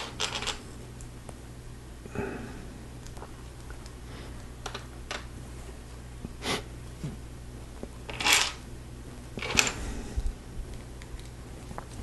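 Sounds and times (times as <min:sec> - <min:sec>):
plastic bricks clicking and rattling: 0:00.0 - 0:00.6, 0:08.1 - 0:08.6.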